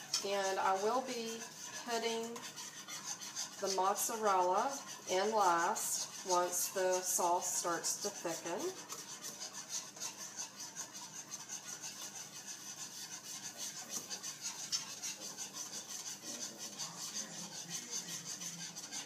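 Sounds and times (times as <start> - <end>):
whisk scraping a skillet: 0.0 - 19.0.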